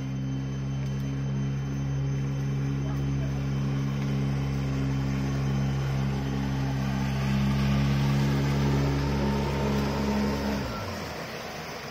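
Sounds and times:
outboard motor humming: 0.0s - 11.9s
water rushing hiss: 4.1s - 11.9s.

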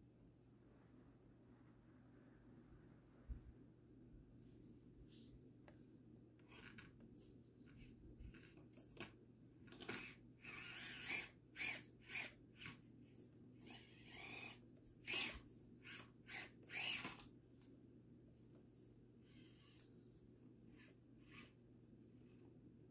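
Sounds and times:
toy car motor whirring: 9.7s - 17.3s, 19.3s - 19.9s, 20.7s - 21.6s.

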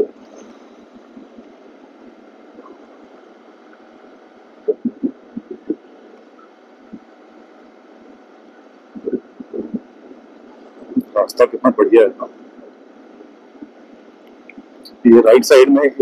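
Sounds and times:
muffled wind and road rush: 4.7s - 6.2s, 8.9s - 12.6s.

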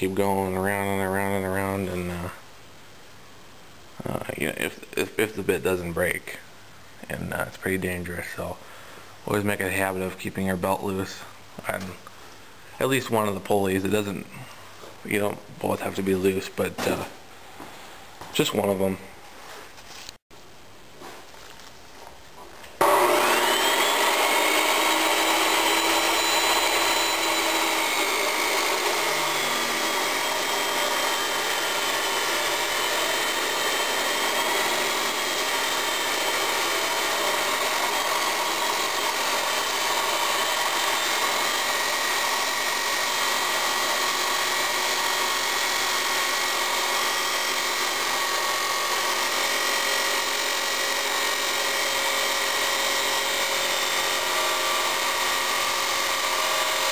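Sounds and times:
abrasive chop saw cutting steel: 22.8s - 56.9s.

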